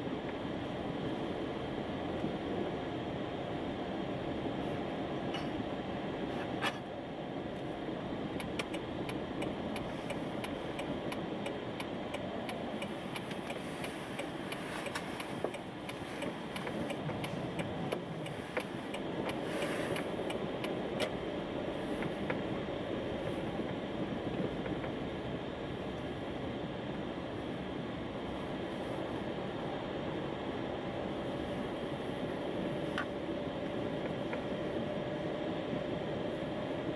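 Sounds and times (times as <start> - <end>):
car road and engine noise: 0.0 - 36.9
turn signal clicking: 8.3 - 22.6, 23.5 - 25.1, 32.9 - 34.8.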